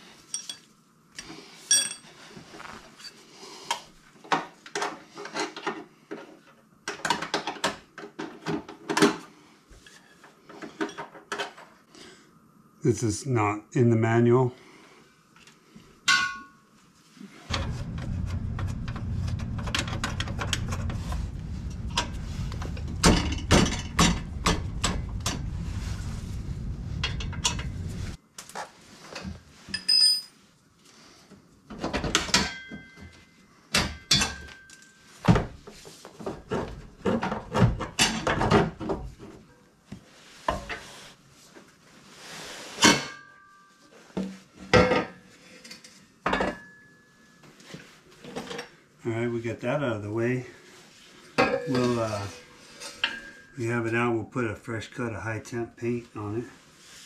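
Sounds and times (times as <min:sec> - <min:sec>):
metal exhaust clanking: 0:17.5 - 0:28.2
steady low hum: 0:17.5 - 0:28.2.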